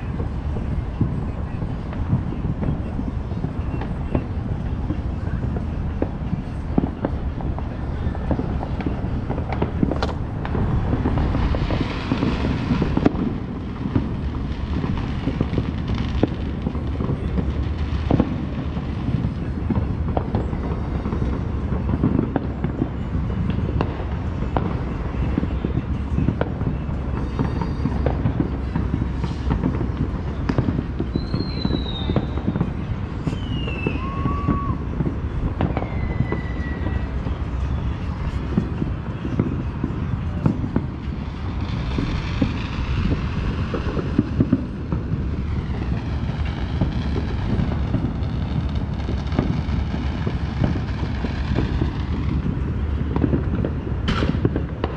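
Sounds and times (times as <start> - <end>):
fireworks popping and banging: 0.0 - 54.9
falling firework whistles: 27.1 - 52.5.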